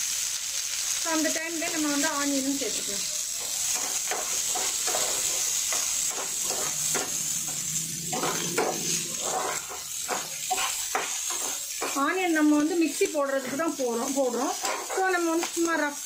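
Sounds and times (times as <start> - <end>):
onions sizzling in oil: 0.0 - 16.0
spatula scraping pan: 3.4 - 15.6.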